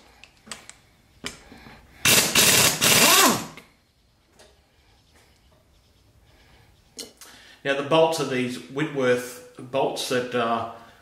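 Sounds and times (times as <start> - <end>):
hand-held power tool running: 2.0 - 3.6.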